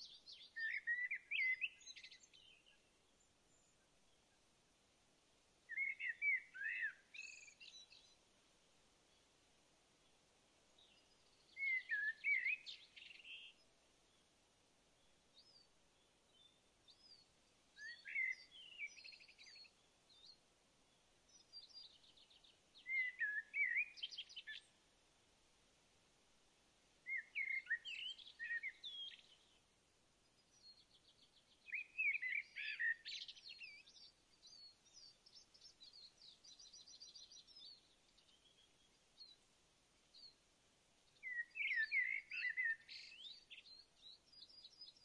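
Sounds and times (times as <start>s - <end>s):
songbird warbling and trilling: 0.0s - 2.8s, 5.7s - 8.2s, 10.8s - 13.6s, 17.8s - 20.3s, 21.3s - 24.7s, 27.0s - 29.6s, 30.4s - 39.4s, 41.1s - 45.0s.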